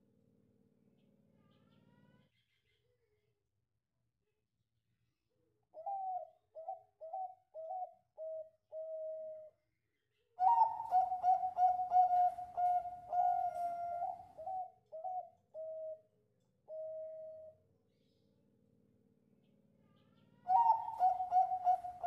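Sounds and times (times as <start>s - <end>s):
dove cooing: 5.8s - 9.5s, 10.4s - 16.1s, 20.4s - 22.0s.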